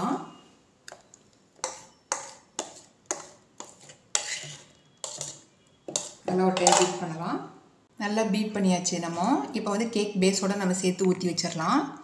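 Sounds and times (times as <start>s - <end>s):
spoon scraping bowl: 0.9s - 7.0s.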